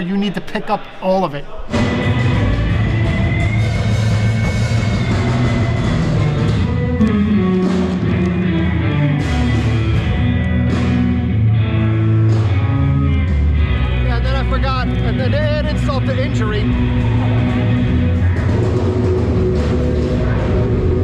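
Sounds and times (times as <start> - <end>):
rock music with guitar: 1.7 - 21.0.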